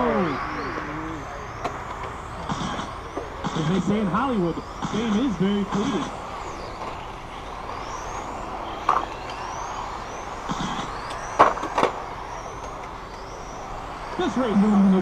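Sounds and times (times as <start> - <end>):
rc car motor whines: 0.0 - 15.0.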